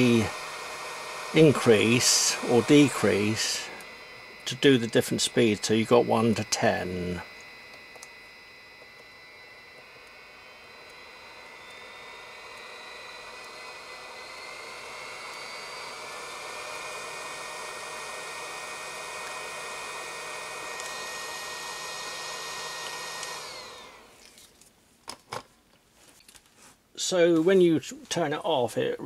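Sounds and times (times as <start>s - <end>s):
hot air gun fan whine: 0.0s - 24.5s.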